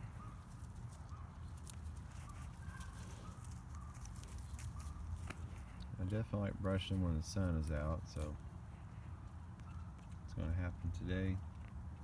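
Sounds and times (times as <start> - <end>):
dry leaves rustling: 0.0 - 9.4.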